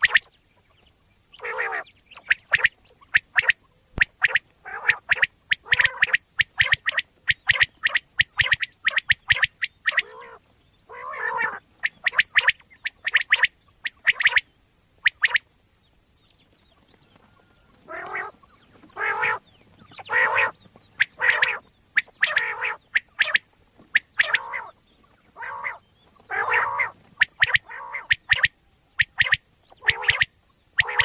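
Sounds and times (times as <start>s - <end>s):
quail calling: 0.0s - 15.5s, 16.5s - 31.0s.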